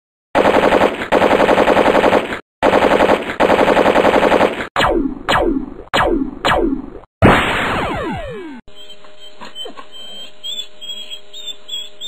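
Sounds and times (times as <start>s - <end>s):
machine-gun fire: 0.4s - 5.4s
single gunshots with falling whine: 0.4s - 8.6s.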